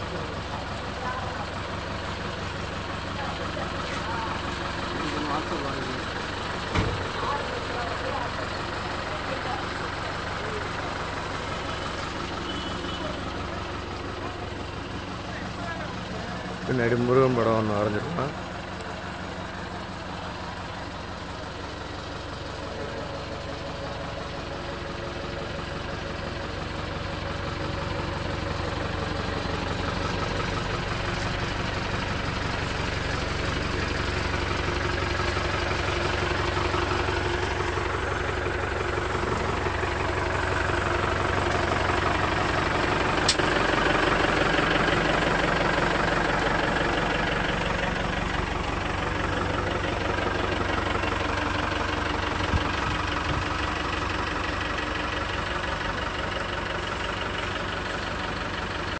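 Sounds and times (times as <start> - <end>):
diesel engine idling: 0.0 - 58.9
sharp click: 43.2 - 43.5.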